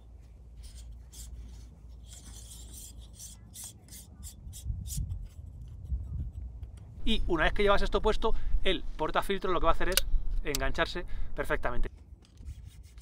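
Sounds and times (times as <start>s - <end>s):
metal thread rasping scrapes: 0.6s - 5.9s.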